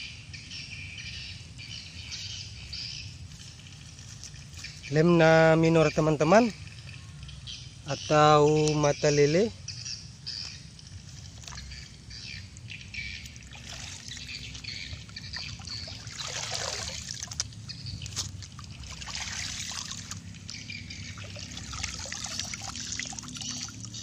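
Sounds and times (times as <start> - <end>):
pond water trickling and splashing: 2.5 - 9.5, 10.2 - 24.0.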